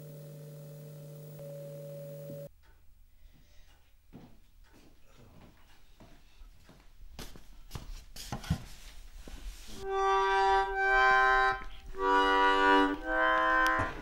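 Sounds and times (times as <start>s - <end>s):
accordion held chords: 9.8s - 14.0s.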